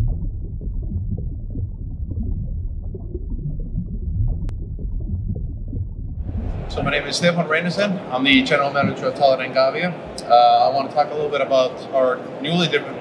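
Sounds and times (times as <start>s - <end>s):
deep rumbling underwater drone: 0.0s - 7.2s.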